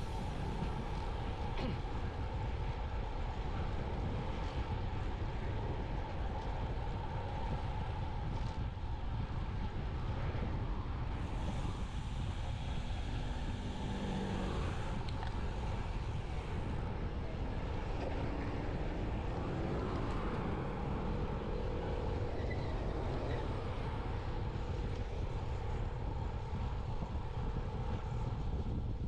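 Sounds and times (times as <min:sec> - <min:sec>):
wind rushing on microphone: 0:00.0 - 0:29.0
passing vehicle engine: 0:12.2 - 0:24.9.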